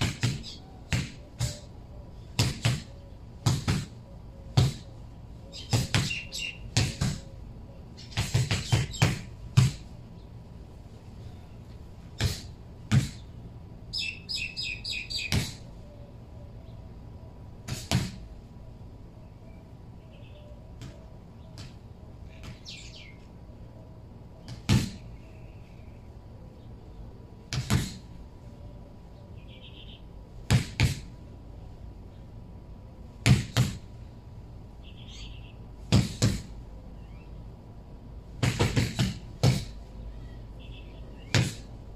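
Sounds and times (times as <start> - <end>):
punches thudding on tyre: 0.0 - 1.6, 2.4 - 4.0, 6.8 - 7.2, 8.2 - 9.8, 12.2 - 13.2, 17.7 - 18.2, 24.5 - 25.0, 27.5 - 28.0, 30.5 - 31.1, 33.2 - 33.8, 35.9 - 36.5, 38.4 - 39.8, 41.3 - 41.7
bird chirping: 0.3 - 3.3, 4.0 - 9.2, 13.9 - 17.4, 19.2 - 21.7, 22.3 - 27.1, 28.6 - 30.1, 34.8 - 35.7, 40.0 - 41.4
gloves punching rubber tyre: 35.9 - 36.5, 38.4 - 39.8.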